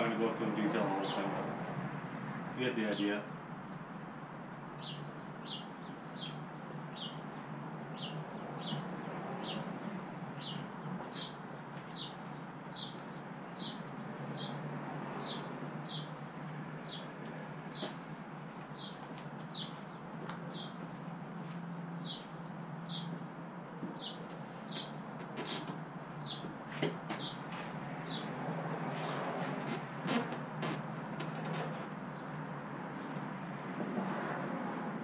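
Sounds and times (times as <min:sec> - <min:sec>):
bird chirping: 0:04.8 - 0:07.3, 0:07.9 - 0:14.6, 0:15.2 - 0:17.1, 0:18.7 - 0:20.8, 0:22.0 - 0:23.2, 0:23.9 - 0:26.5.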